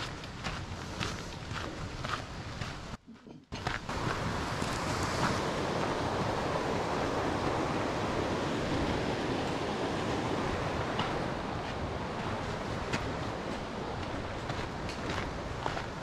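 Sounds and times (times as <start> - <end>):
water rushing: 3.9 - 16.0.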